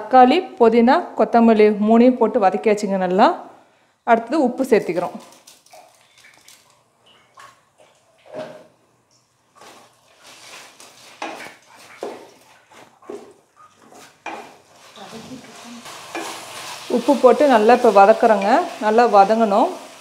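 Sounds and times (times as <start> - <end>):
wooden spatula scraping a pot: 9.6 - 19.5.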